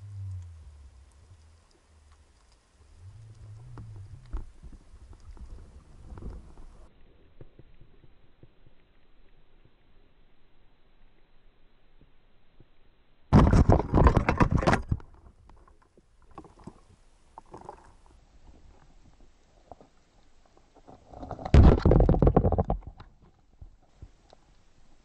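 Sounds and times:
faint underwater clicks: 0.0s - 12.8s, 13.9s - 25.0s
underwater crackling knocks: 21.5s - 23.1s.

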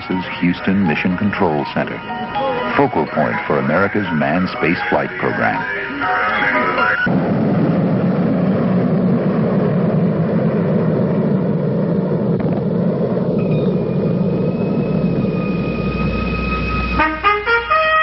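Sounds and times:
high held musical tone: 0.0s - 7.1s
rocket engines rumbling: 0.0s - 18.0s.

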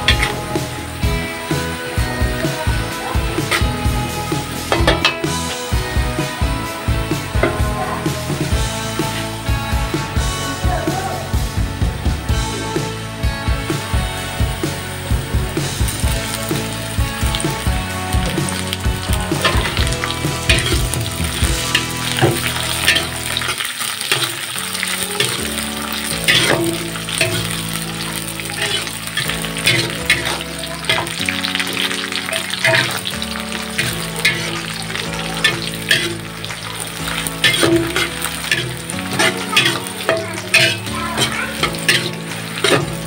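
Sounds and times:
spatula scraping and tapping pan: 0.0s - 0.5s, 16.4s - 43.0s
food sizzling in hot oil: 0.0s - 43.0s.

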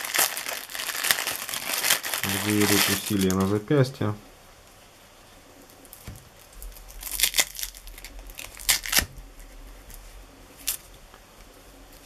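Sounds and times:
velcro ripping apart: 0.0s - 3.4s, 6.8s - 9.2s.

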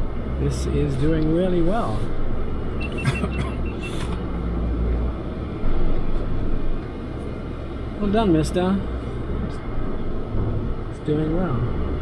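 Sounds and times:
truck engine low rumble: 0.0s - 12.0s
high beeps: 2.7s - 4.1s.

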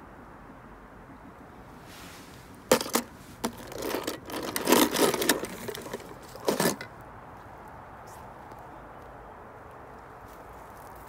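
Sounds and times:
crackling and rustling: 1.8s - 11.0s
toy car clicking into plastic tub: 2.7s - 6.9s.

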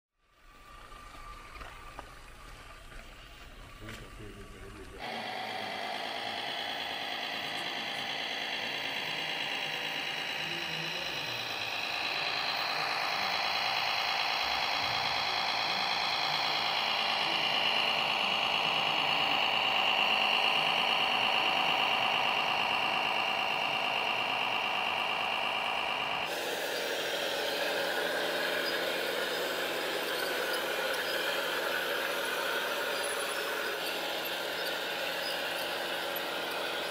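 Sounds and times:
rough motor whine: 0.2s - 36.9s
electric motor whining: 0.3s - 36.9s.

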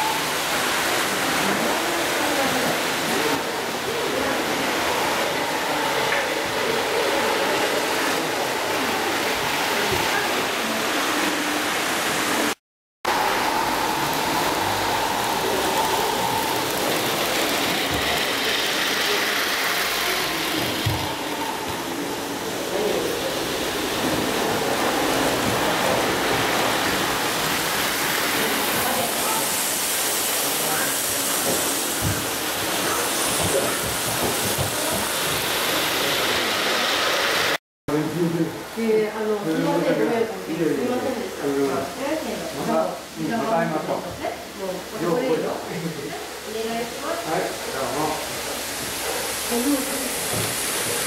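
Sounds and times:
model train wheels hissing: 13.1s - 37.6s, 47.1s - 51.0s.

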